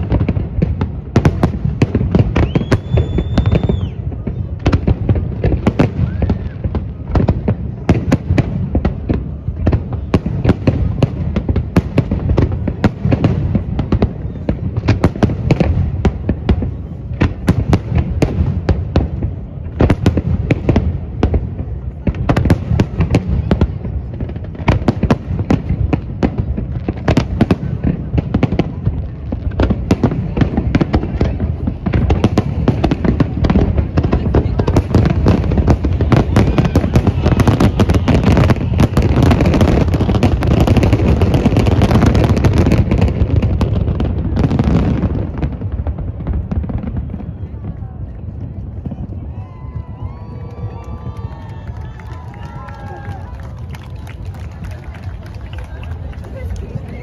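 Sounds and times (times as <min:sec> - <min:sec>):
fireworks bursting and crackling: 0:00.0 - 0:57.0
firework whistle: 0:02.1 - 0:04.8, 0:05.7 - 0:07.1, 0:34.4 - 0:42.7.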